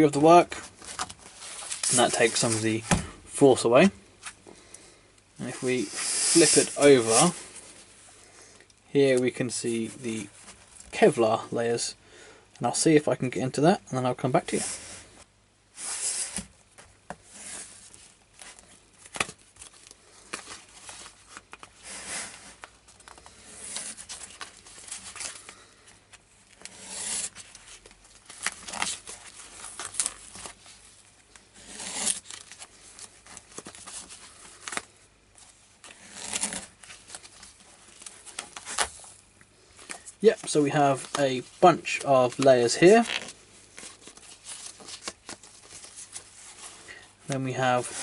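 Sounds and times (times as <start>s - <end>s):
fabric tearing and rustling: 17.2s - 25.6s, 26.5s - 34.9s, 35.8s - 39.3s, 42.3s - 46.8s
plastic crinkling: 17.8s - 48.0s
knife cutting fabric: 31.6s - 32.2s.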